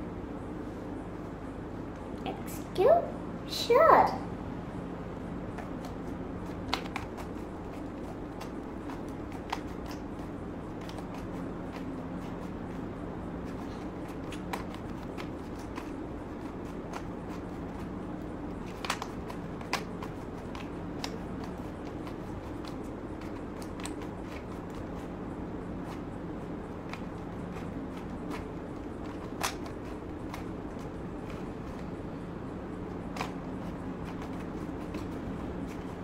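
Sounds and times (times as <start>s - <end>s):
steady low hum: 0.0s - 36.0s
puzzle cube clicks turning: 18.6s - 25.1s, 26.8s - 31.8s, 32.8s - 36.0s.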